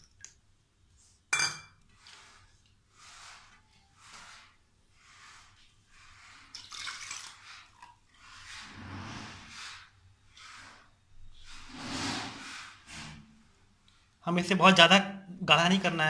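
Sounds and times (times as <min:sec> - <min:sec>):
hand sloshing batter in steel bowl: 0:01.9 - 0:12.9
water pouring: 0:06.1 - 0:09.8.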